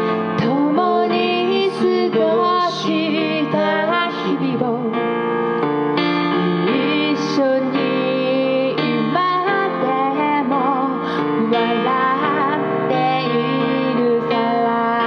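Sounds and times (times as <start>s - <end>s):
woman singing into a microphone: 0.0s - 5.3s, 6.2s - 15.0s
electronic keyboard piano chords: 0.0s - 15.0s.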